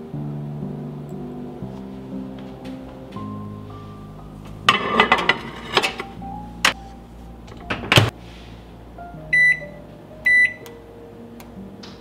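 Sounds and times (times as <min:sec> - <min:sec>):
metal baking pan clattering: 0:04.6 - 0:06.2
short oven beeps: 0:09.3 - 0:10.6.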